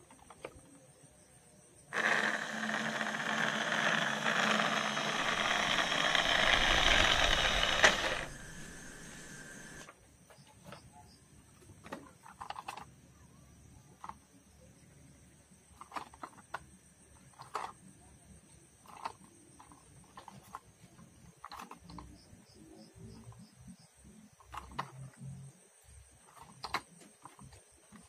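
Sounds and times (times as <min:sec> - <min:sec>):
toy car motor whirring: 0:01.9 - 0:09.9, 0:17.3 - 0:17.8, 0:18.8 - 0:20.6
plastic toy cars clicking: 0:02.0 - 0:08.8, 0:11.8 - 0:13.0, 0:13.9 - 0:14.3, 0:15.7 - 0:18.0, 0:18.8 - 0:22.3, 0:24.4 - 0:25.2, 0:26.2 - 0:28.0.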